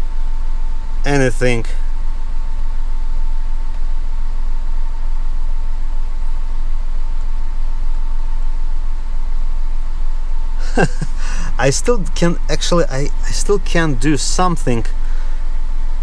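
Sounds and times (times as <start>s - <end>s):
car engine idling: 10.6s - 16.0s.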